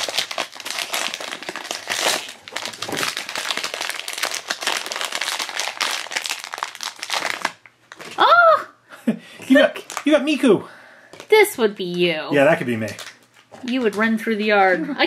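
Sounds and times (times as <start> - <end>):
foil bag crinkling: 0.0 - 8.2, 9.8 - 10.3, 12.4 - 14.2.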